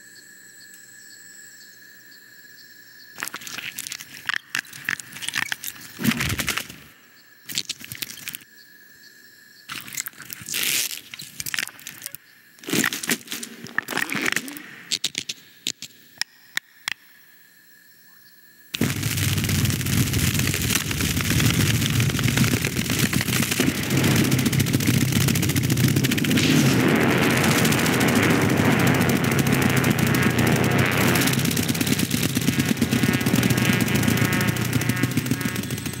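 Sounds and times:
insect wings whirring buzz: 3.1 - 8.5, 9.7 - 16.0, 18.8 - 36.0
scattered clicks and cracks: 3.2 - 6.9, 9.7 - 17.0, 18.8 - 36.0.

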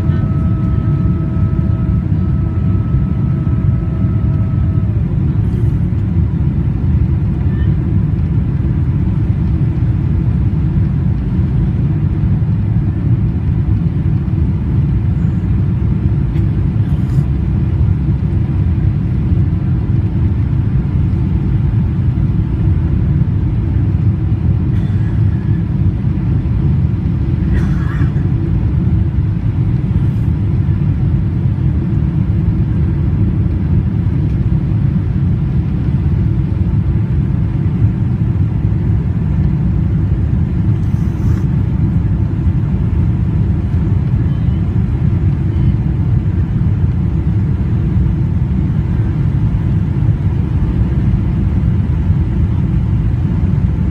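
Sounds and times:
airliner cabin rumble: 0.0 - 53.9.

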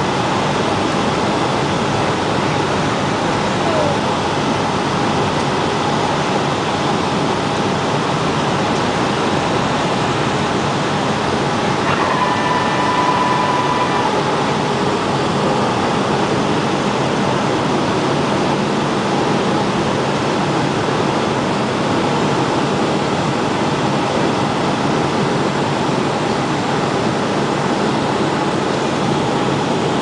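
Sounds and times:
jet engines and air rush: 0.0 - 30.0
steady tone: 9.9 - 17.3.

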